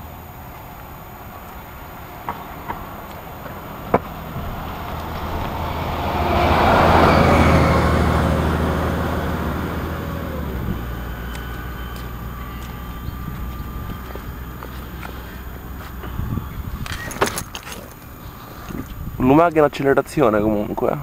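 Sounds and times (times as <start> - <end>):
motor vehicle passing by: 2.2 - 17.8.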